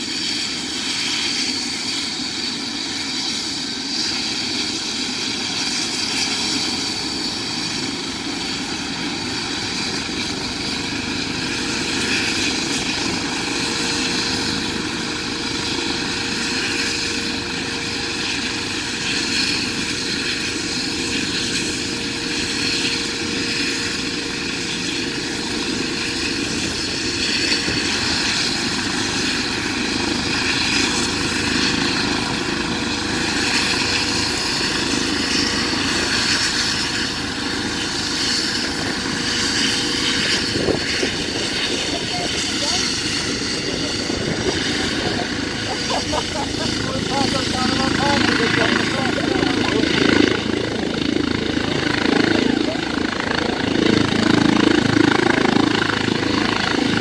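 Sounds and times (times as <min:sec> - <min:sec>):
helicopter engine whine: 0:00.0 - 0:57.0
rotor rumble: 0:40.4 - 0:55.0.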